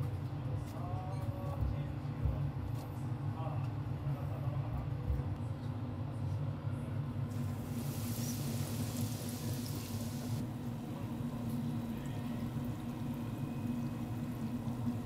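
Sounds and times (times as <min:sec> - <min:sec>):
meat sizzling in hot oil: 0:07.3 - 0:10.4
oil bubbling: 0:07.3 - 0:15.0.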